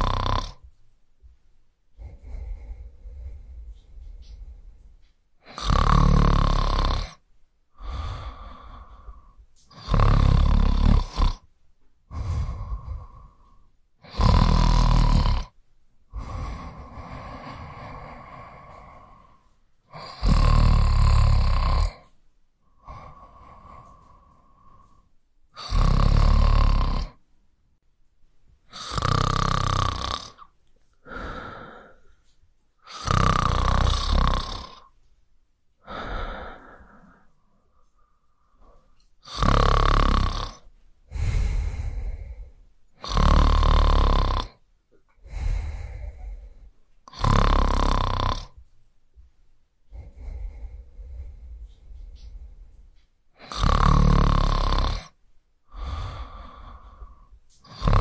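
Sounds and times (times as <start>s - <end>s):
person snoring: 0.0s - 0.6s, 2.0s - 4.7s, 5.4s - 7.2s, 7.8s - 11.5s, 12.1s - 27.2s, 28.7s - 32.2s, 32.8s - 34.9s, 35.8s - 44.6s, 45.2s - 48.6s, 49.9s - 52.8s, 53.4s - 58.0s
breathing: 2.0s - 5.2s, 7.8s - 9.7s, 12.1s - 14.2s, 16.1s - 20.4s, 21.8s - 25.9s, 30.9s - 33.2s, 35.8s - 43.3s, 45.2s - 48.6s, 49.9s - 58.0s.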